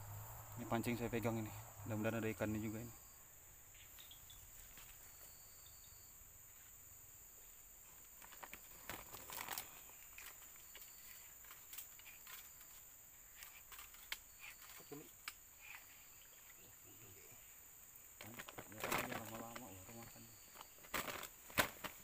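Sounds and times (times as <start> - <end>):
insects droning: 0.0 - 22.0
rustling: 3.8 - 5.8, 6.4 - 16.6, 17.4 - 22.0.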